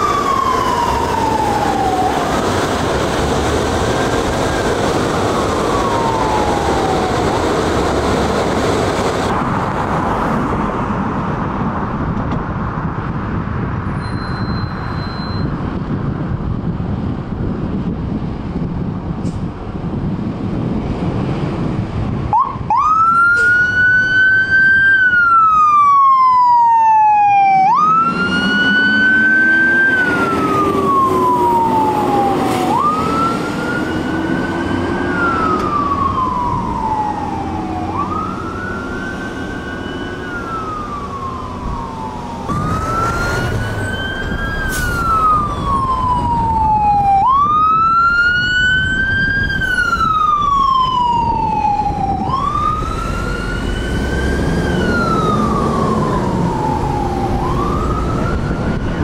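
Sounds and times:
low siren note climbing: 0.0 - 9.5, 22.3 - 59.0
fire engine siren wailing: 0.0 - 11.8, 22.0 - 59.0.

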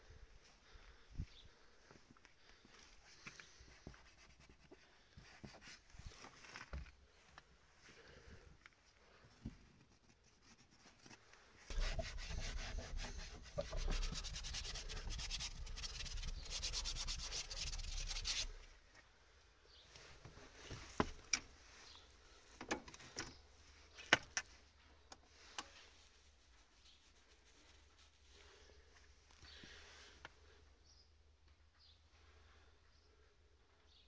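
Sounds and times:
hand rubbing frost off glass: 10.5 - 18.6.

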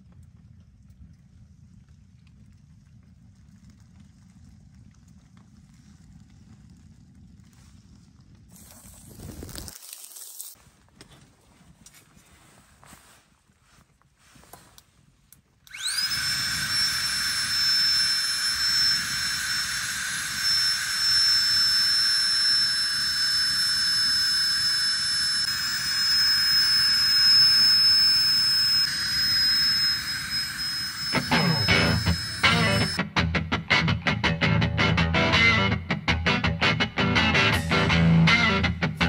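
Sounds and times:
battery blower fan whining: 15.6 - 33.0.

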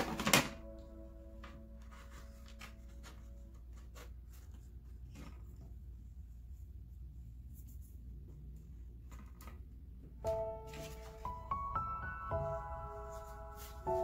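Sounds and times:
background music: 0.0 - 4.4, 10.2 - 14.0.

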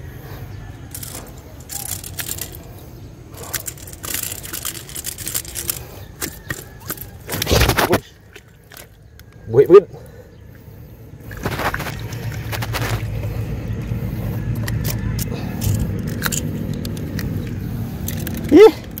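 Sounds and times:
footsteps on stony ground: 11.3 - 14.8.

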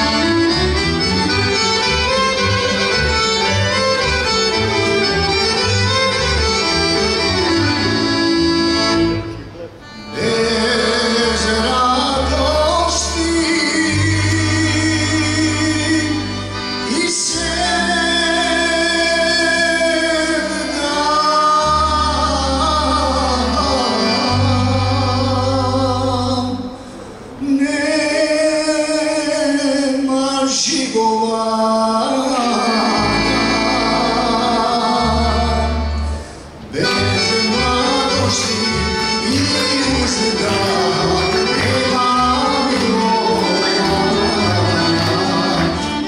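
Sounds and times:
bass guitar: 0.0 - 27.4, 32.7 - 46.0
accordion: 0.0 - 30.7, 31.7 - 46.0
acoustic guitar: 0.0 - 46.0
man singing: 10.0 - 26.8, 27.4 - 36.0, 36.7 - 46.0
singer breathing: 26.8 - 27.4, 36.1 - 36.6.

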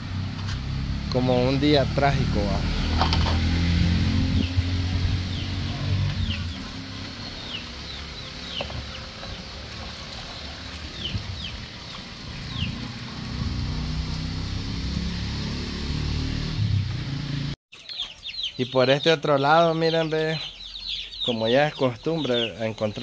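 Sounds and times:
chickens peeping: 17.7 - 23.0.

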